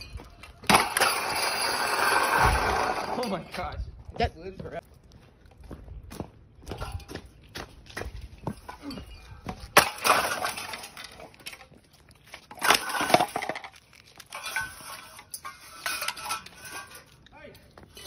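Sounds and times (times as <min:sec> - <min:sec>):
object smashing with rattle: 0:00.6 - 0:03.4, 0:09.6 - 0:11.7, 0:12.4 - 0:17.1.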